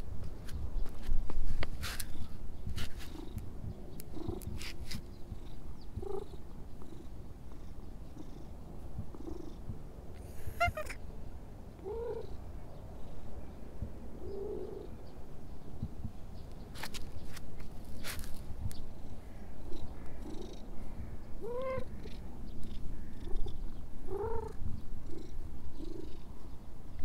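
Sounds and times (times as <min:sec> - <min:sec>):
cat purring: 0:04.0 - 0:04.6, 0:05.3 - 0:09.8, 0:11.8 - 0:12.4, 0:18.9 - 0:26.5.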